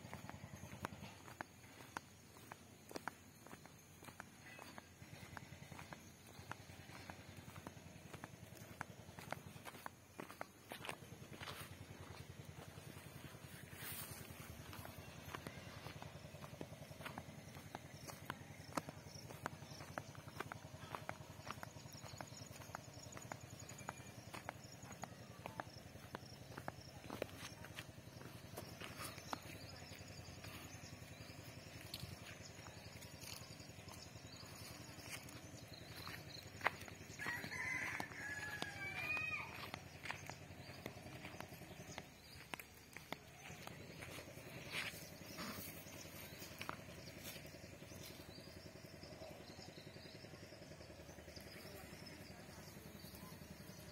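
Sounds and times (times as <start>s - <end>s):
faint engine running: 0.0s - 53.9s
footsteps on dirt path: 0.0s - 53.9s
low outdoor rumble: 0.0s - 53.9s.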